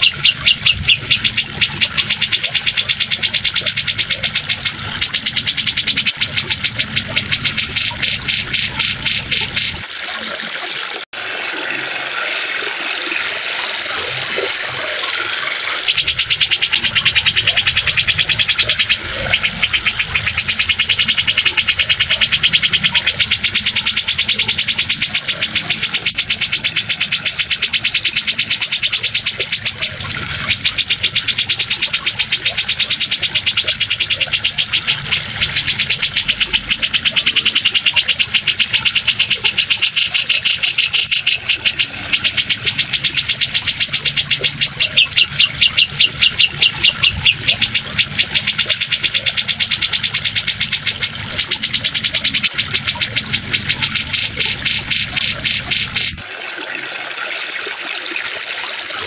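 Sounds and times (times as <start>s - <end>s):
bird high chattering song: 0.0s - 9.8s, 15.8s - 56.2s
running water rushing: 0.0s - 59.0s.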